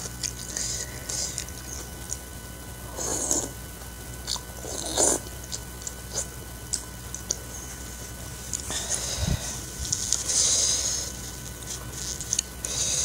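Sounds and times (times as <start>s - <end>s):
chewing with mouth clicks: 0.0s - 2.3s, 4.2s - 7.6s, 11.4s - 12.6s
slurping noodles: 2.9s - 3.6s, 4.3s - 5.3s.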